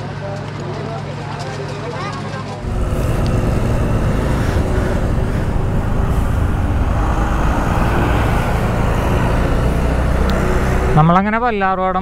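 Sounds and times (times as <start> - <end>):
motorcycle engine running: 2.6 - 11.4
road and wind noise: 2.6 - 12.0.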